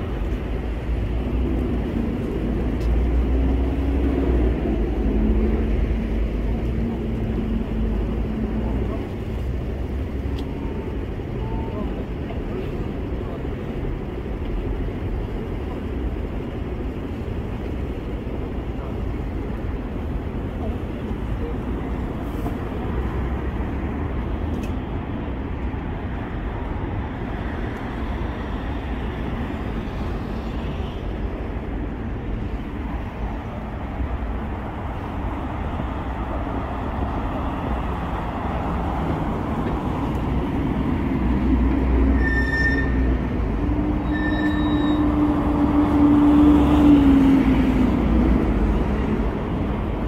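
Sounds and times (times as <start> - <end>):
traffic rumble: 0.0 - 50.0
vehicle engine hum: 0.0 - 50.0
short high beeps: 42.2 - 43.1, 44.1 - 45.0.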